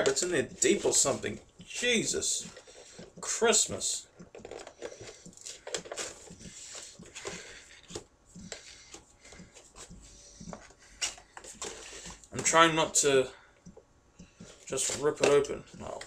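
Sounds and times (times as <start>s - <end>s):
clicks and scrapes: 4.2s - 9.0s
packaging rustling and crinkling: 4.3s - 12.6s.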